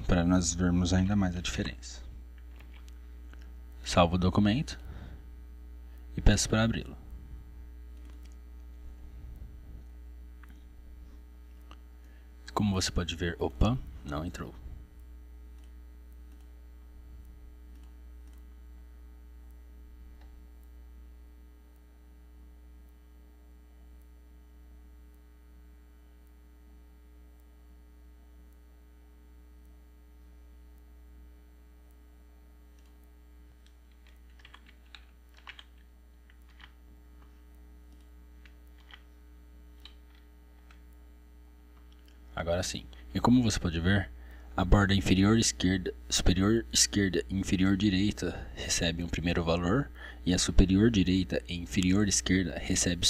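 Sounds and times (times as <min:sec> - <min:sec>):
low electrical hum: 0:00.0 - 0:53.0
keyboard keystrokes and clicks: 0:32.7 - 0:37.3, 0:37.9 - 0:39.1.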